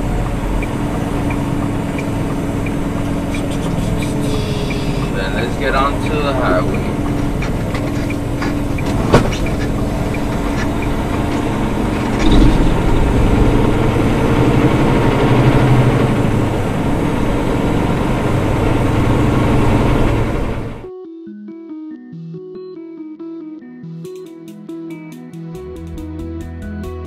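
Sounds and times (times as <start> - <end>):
diesel truck engine accelerating: 0.0 - 20.9.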